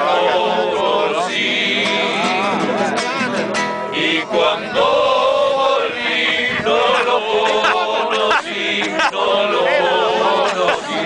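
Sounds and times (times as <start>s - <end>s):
men singing together: 0.0s - 3.2s, 3.9s - 11.0s
strummed acoustic guitar: 0.0s - 4.8s.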